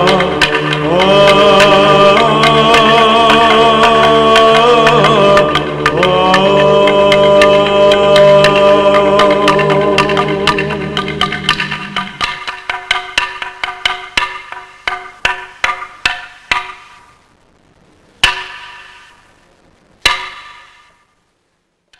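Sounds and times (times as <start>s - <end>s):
ringing struck percussion: 0.0s - 17.2s, 18.2s - 19.3s, 20.0s - 21.0s.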